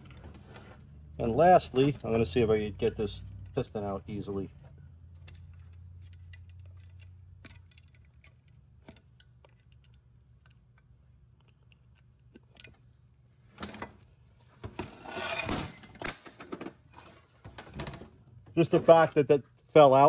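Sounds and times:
faint low hum: 0.0s - 16.0s
metallic clicks and scrapes: 5.1s - 10.6s.

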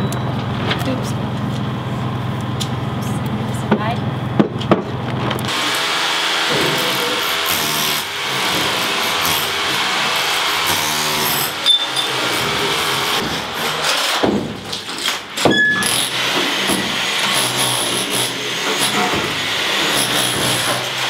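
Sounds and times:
angle grinder cutting metal: 5.5s - 14.2s, 15.8s - 21.0s
rotary hammer chiselling tiles: 15.8s - 21.0s.

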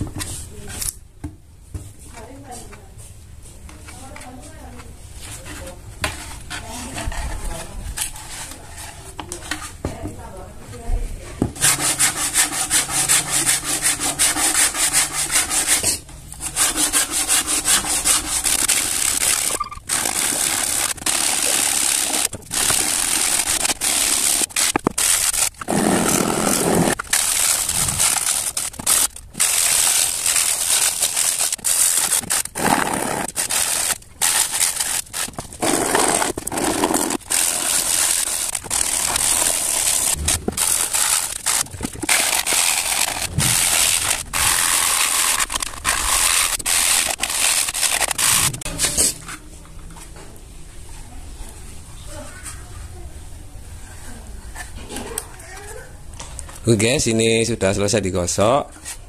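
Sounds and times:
hand sanding wood: 11.6s - 48.7s.

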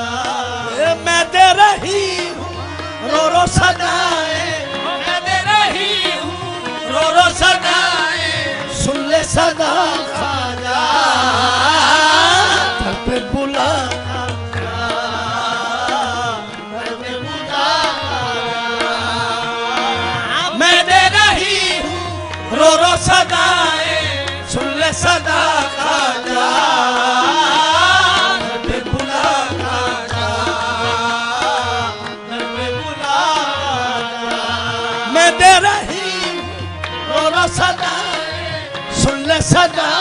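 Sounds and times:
harmonium: 0.0s - 40.0s
tabla: 0.0s - 40.0s.

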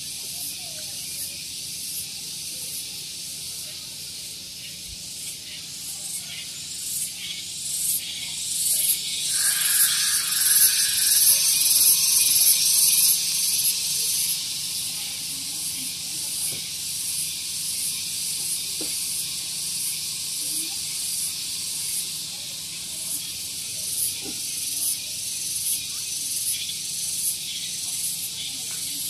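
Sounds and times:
cicadas buzzing: 0.0s - 29.0s.

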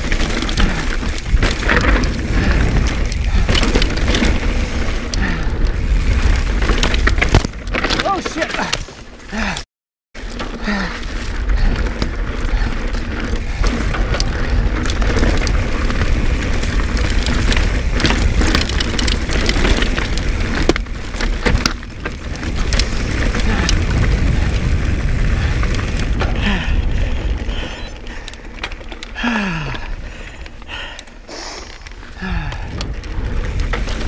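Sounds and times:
wind rumble on microphone: 0.0s - 7.7s, 11.3s - 28.5s, 32.2s - 34.0s
tyres crunching over stone: 0.0s - 9.2s, 10.2s - 26.4s
bike knocks and rattles: 0.0s - 9.5s, 10.2s - 30.9s, 32.2s - 34.0s.

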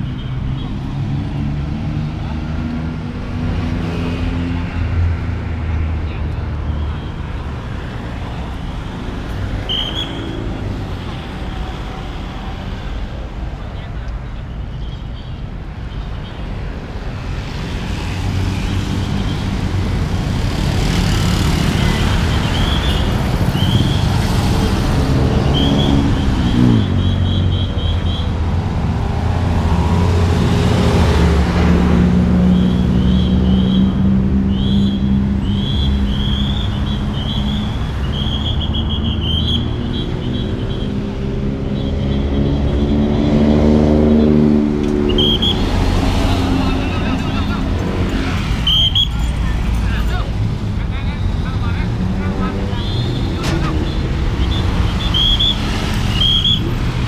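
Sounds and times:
road traffic rumble: 0.0s - 57.0s
vehicle accelerating: 17.5s - 38.1s, 39.6s - 57.0s.

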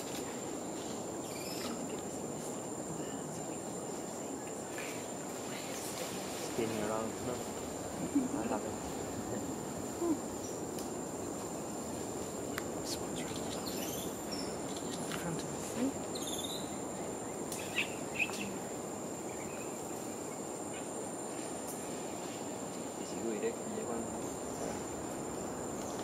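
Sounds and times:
bird chirps: 16.1s - 16.8s.

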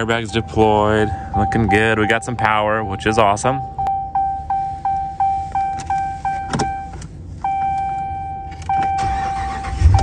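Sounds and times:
dashboard warning chime: 0.0s - 10.0s
engine starter cranking: 8.6s - 10.0s.

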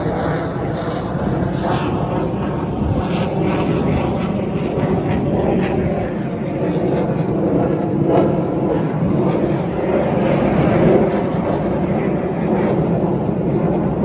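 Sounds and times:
jet aircraft flying overhead: 0.0s - 14.0s.

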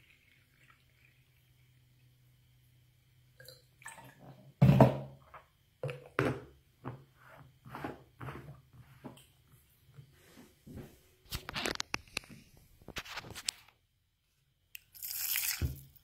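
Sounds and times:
plastic jug thunk on counter: 4.6s - 5.2s.

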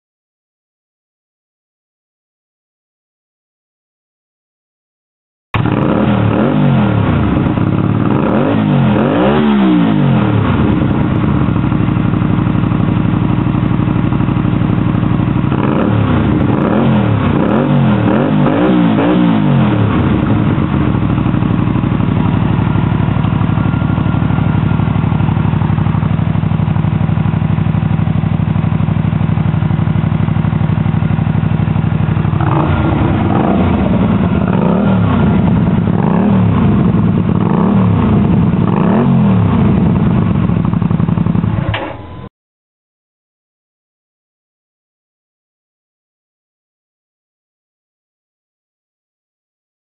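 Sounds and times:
motorcycle engine idling and revving: 5.6s - 42.3s.

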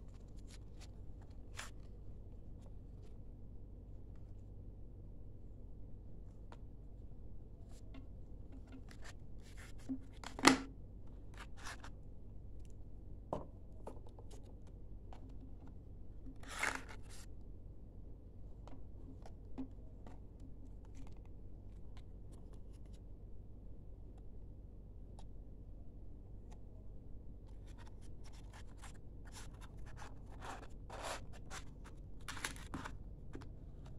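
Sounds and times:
paper rustling: 27.6s - 33.0s.

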